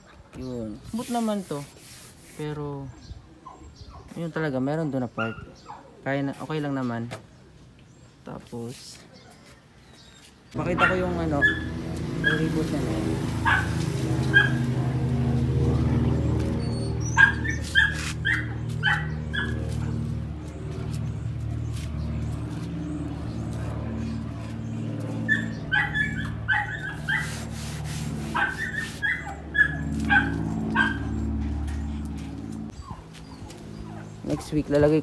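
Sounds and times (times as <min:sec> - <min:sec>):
dog barking high yaps: 0:10.7 - 0:12.5, 0:13.4 - 0:14.7, 0:16.9 - 0:20.0, 0:25.2 - 0:27.5, 0:28.3 - 0:31.2.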